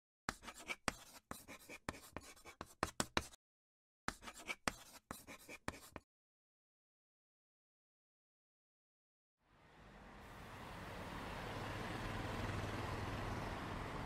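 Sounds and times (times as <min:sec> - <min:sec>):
pen scratching on paper: 0:00.3 - 0:03.4, 0:04.1 - 0:06.0.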